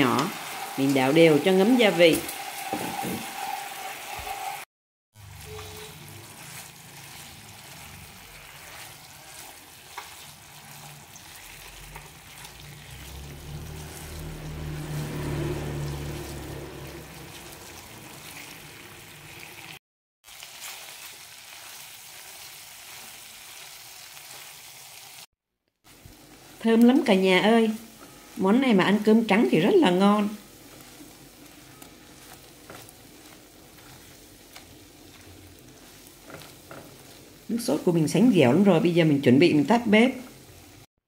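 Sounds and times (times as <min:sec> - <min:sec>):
spatula clicking and scraping pan: 0:00.0 - 0:04.6, 0:05.3 - 0:13.2, 0:27.7 - 0:37.9
eggs sizzling in a frying pan: 0:00.0 - 0:40.9.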